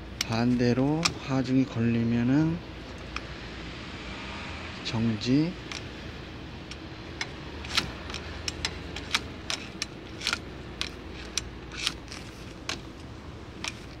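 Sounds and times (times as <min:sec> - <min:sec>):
ratcheting hinge clicking: 0:05.6 - 0:14.0.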